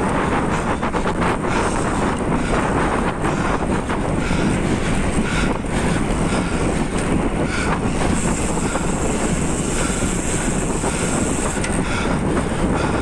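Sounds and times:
low rumble of bicycle riding: 0.0s - 13.0s
wind buffeting microphone: 0.0s - 13.0s.

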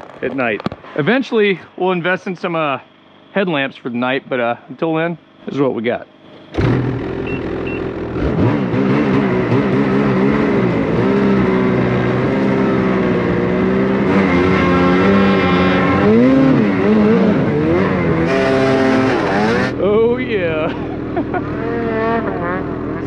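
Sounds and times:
snowmobile engine running: 6.3s - 23.0s.

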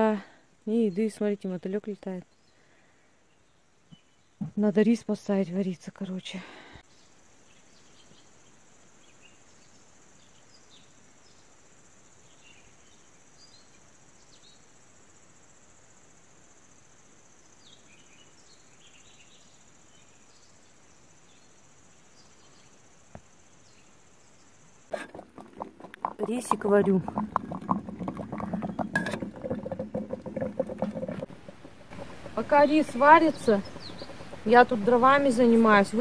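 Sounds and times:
high-pitched insect chirring: 30.8s - 36.0s.

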